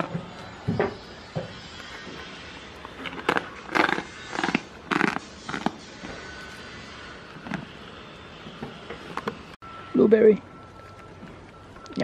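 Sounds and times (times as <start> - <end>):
goat chewing crunchily: 1.8 - 5.8.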